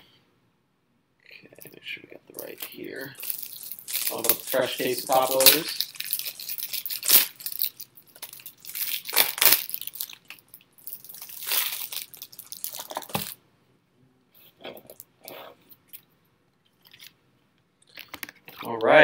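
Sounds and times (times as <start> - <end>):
faint handling sounds: 1.5 - 13.4
foil wrapper crinkling and tearing: 2.3 - 13.4.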